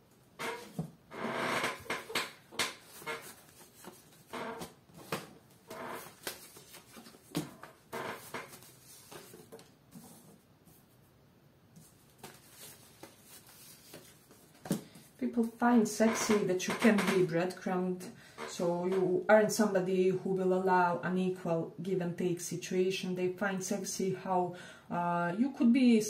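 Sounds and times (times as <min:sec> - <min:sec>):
cards shuffling and rustling: 0:02.1 - 0:10.4, 0:11.8 - 0:15.2.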